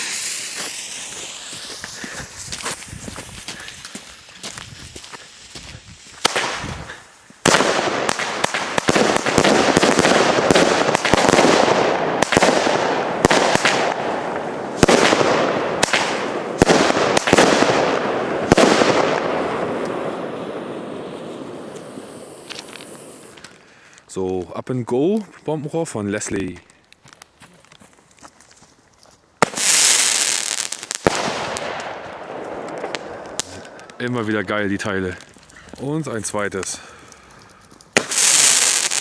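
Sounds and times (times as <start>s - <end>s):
firework crackling and bangs: 0.0s - 23.6s, 29.4s - 35.5s, 37.9s - 39.0s.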